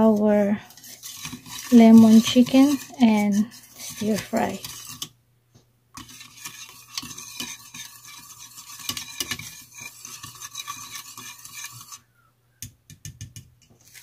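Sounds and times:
wire whisk beating in ceramic bowl: 0.0 - 5.1, 6.0 - 12.0.

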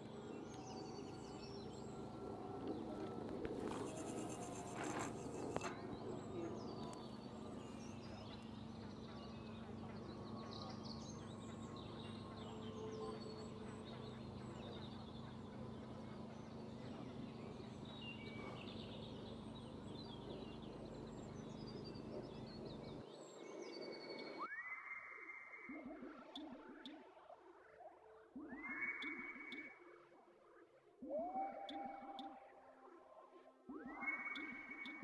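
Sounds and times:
birds chirping and singing: 0.0 - 24.4
steady low hum: 0.0 - 24.4.

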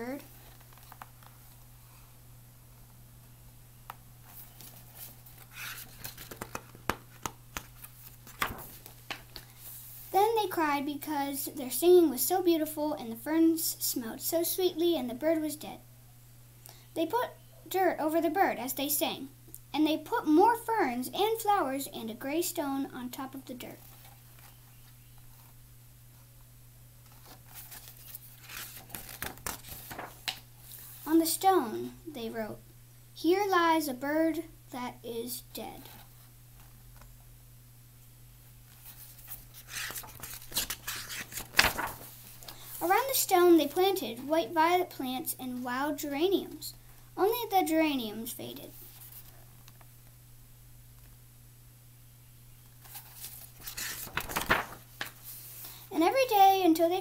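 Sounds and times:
paper rustling: 4.2 - 9.8, 27.0 - 31.0, 38.7 - 42.8, 52.8 - 55.8
book clicks and knocks: 6.1 - 9.4.

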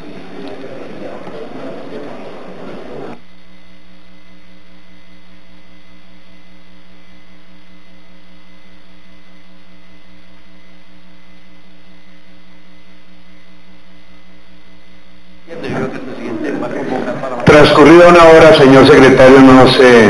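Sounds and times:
electrical mains hum: 0.0 - 20.0.

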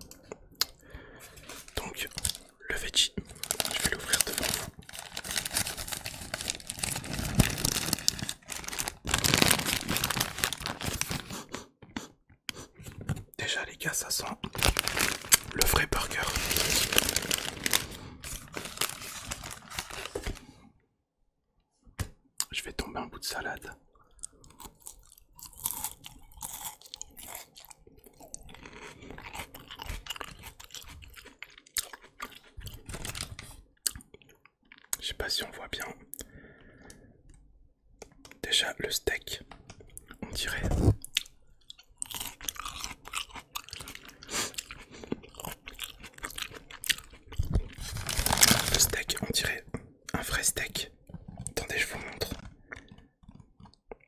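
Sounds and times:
crunchy lettuce chewing: 0.1 - 11.7, 14.4 - 20.4, 24.2 - 34.1, 40.0 - 49.0
paper wrapper crinkling: 3.2 - 11.5, 14.2 - 20.5, 32.6 - 33.6, 46.0 - 49.3.

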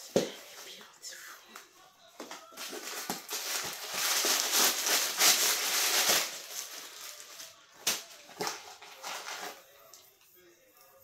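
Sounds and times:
tissue paper rustling: 2.4 - 9.6.

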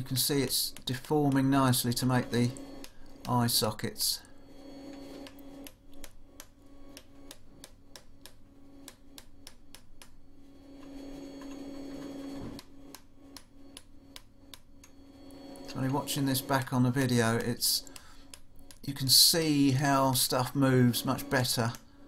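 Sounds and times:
hammer tapping punch into steel: 0.0 - 3.4, 4.9 - 10.2
steady low hum: 0.0 - 22.0.

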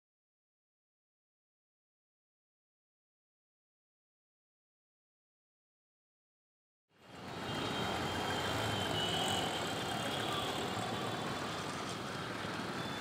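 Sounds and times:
road traffic hum: 7.0 - 13.0.

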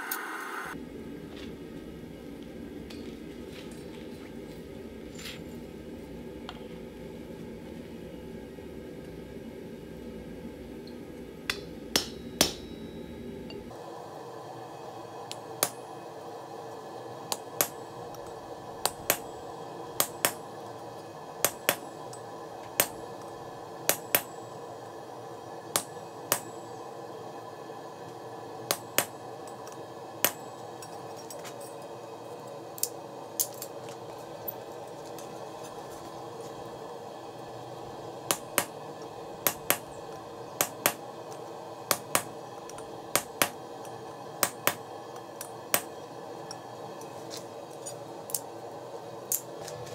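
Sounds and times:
hammer striking chisel on metal: 11.5 - 12.8, 25.8 - 26.5, 43.2 - 43.6.

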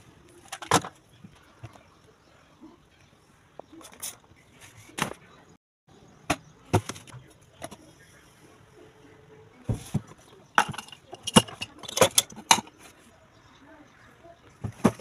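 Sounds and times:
objects knocking on a shelf: 9.7 - 12.7, 14.6 - 15.0
glass jar rattling: 10.6 - 12.7.

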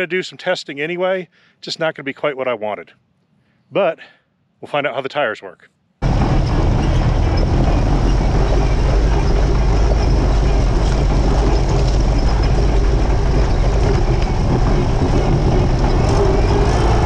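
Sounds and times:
engine and drivetrain rumbling: 6.0 - 17.0
tires crunching stones: 6.0 - 17.0.

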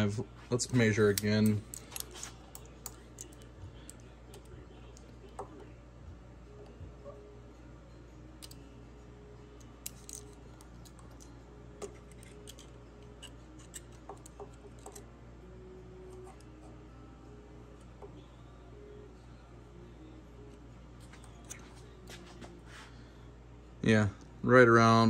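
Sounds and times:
faint low hum: 0.0 - 25.0
light metallic clicks and scrapes: 0.6 - 5.6, 9.8 - 15.1.

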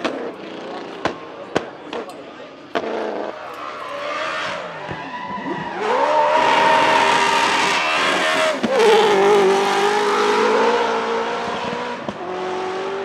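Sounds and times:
car engine revving: 2.6 - 13.0.

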